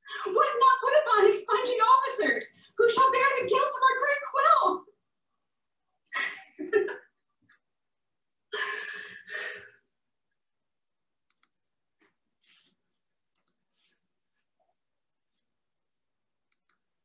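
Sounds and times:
computer mouse clicks: 11.3 - 11.6, 13.3 - 13.8, 16.5 - 16.9.

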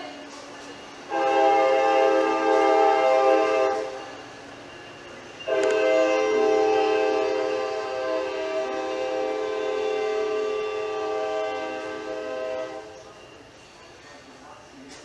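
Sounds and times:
train cars rolling by: 0.0 - 15.0
locomotive air horn blasts: 1.1 - 4.0, 5.4 - 13.0.

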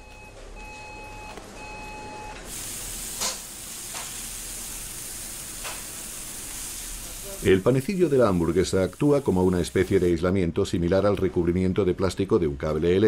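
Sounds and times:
food frying sizzle: 2.4 - 10.1.

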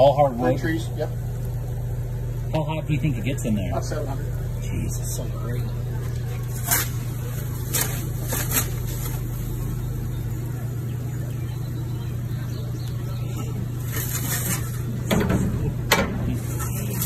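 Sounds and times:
motor humming: 0.0 - 17.0
pizza peel scraping: 6.0 - 9.8, 13.4 - 15.1, 16.2 - 17.0.

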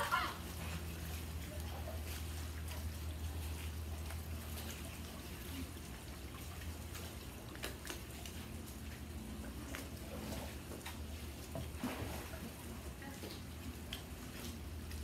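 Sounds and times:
pool water lapping: 0.0 - 15.0
steady low hum: 0.0 - 15.0.

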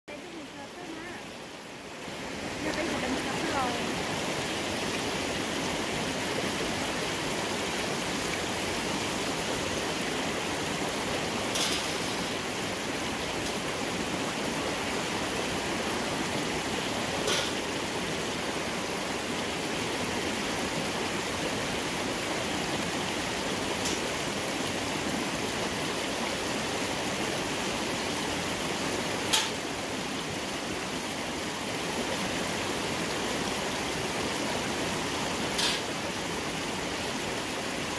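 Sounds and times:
small waterfall rushing: 0.1 - 37.9
stream running over rocks: 0.1 - 37.9.

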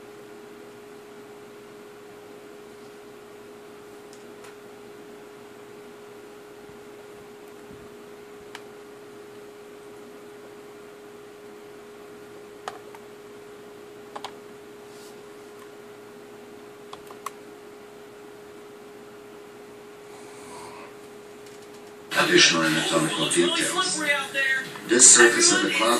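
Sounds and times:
steady electrical hum: 0.0 - 25.9.

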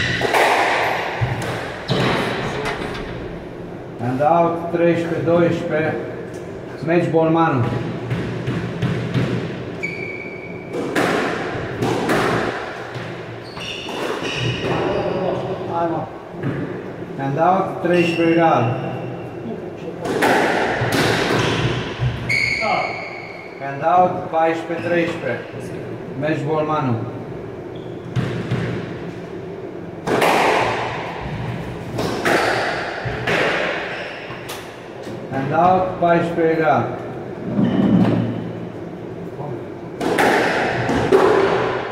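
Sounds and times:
squash ball hitting rackets and walls: 0.0 - 2.5, 7.5 - 15.3, 19.9 - 23.4, 28.1 - 29.2, 30.0 - 34.8, 39.9 - 41.9
shoes squeaking on wooden floor: 13.4 - 15.3, 22.2 - 23.2.

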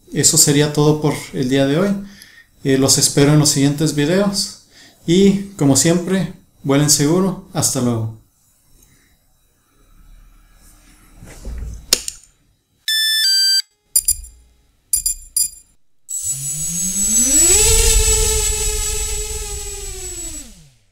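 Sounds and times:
rising engine-like whine: 9.3 - 11.5, 16.1 - 20.9
electronic beeps and clicks: 12.9 - 17.4.

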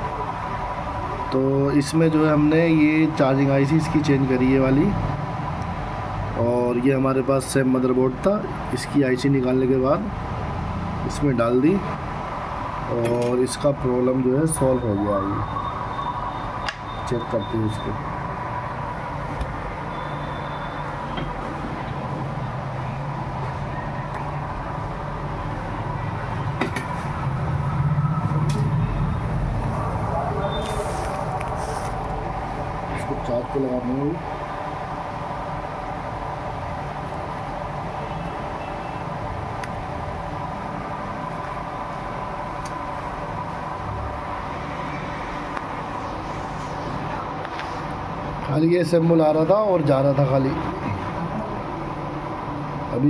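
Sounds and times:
low mechanical rumble: 17.6 - 53.0.

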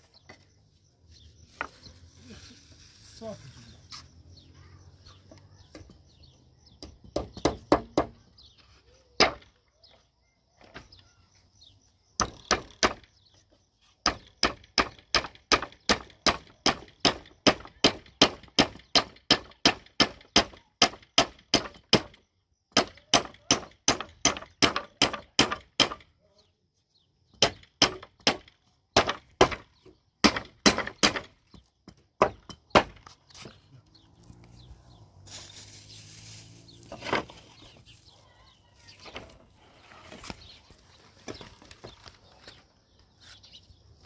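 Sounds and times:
hammer striking nails into wood: 12.2 - 13.1, 14.0 - 26.1, 27.3 - 33.1.

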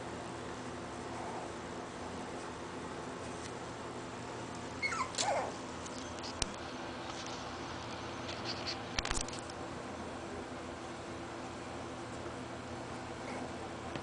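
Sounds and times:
puppy high cry: 4.8 - 5.6.

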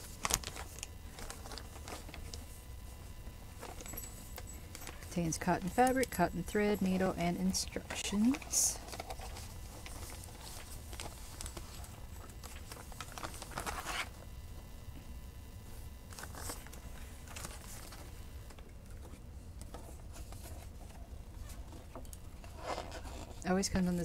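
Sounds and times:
paper sheets rustling: 0.0 - 2.5, 7.7 - 14.1, 16.1 - 18.2
plastic packaging crinkling: 0.0 - 2.6, 3.5 - 14.2.

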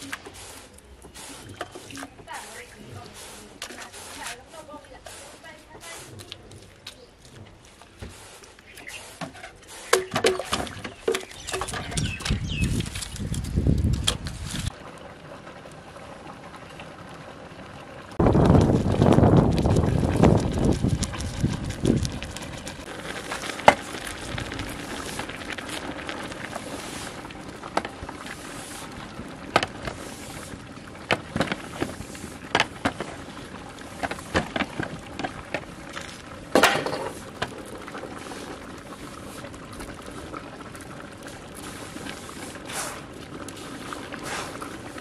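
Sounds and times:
pot boiling with bubbling hiss: 0.0 - 45.0.

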